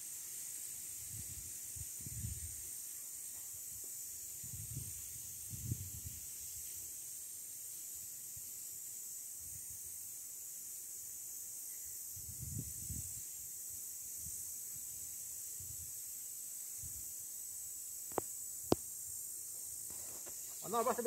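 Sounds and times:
steady high hiss: 0.0s - 21.0s.

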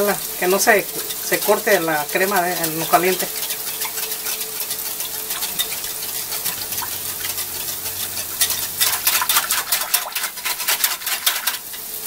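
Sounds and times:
whisk ticking against glass bowl: 0.4s - 12.0s
liquid sloshing: 3.4s - 11.7s.

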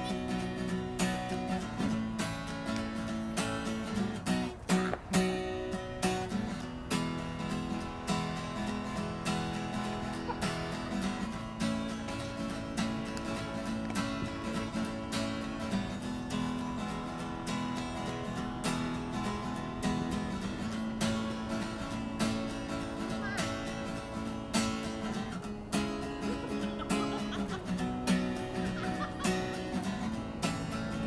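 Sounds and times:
strummed acoustic guitar: 0.0s - 31.0s.

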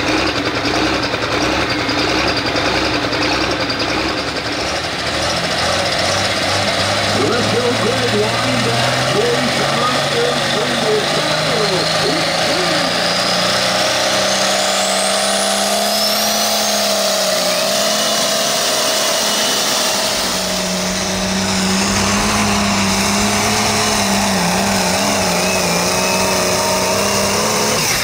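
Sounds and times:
tractor engine running hard: 0.0s - 28.0s
high whine: 7.0s - 28.0s.

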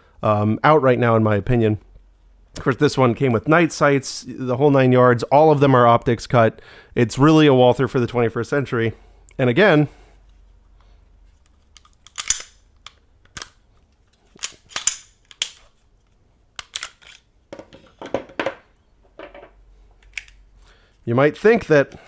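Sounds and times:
pistol metallic clicks and snaps: 11.7s - 13.6s, 14.4s - 15.7s, 16.6s - 17.2s, 20.0s - 20.4s
parts knocking on wooden table: 17.5s - 19.6s.

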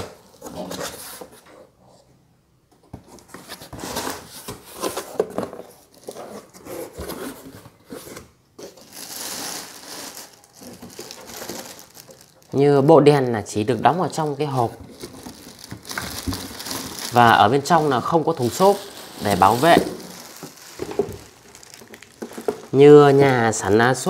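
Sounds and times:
plastic wrap crinkling: 8.6s - 24.0s.

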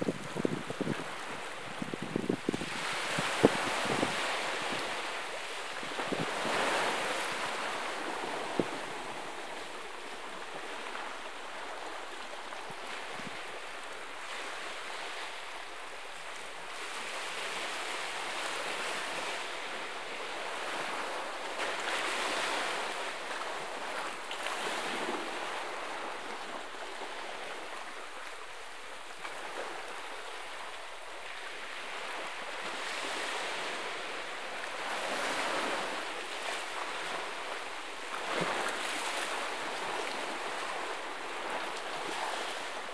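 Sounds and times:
waves breaking on rocky shore: 0.0s - 12.0s.

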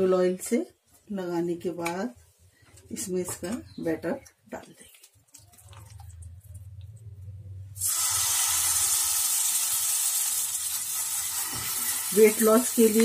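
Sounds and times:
batter sizzling in hot oil: 7.8s - 13.0s.

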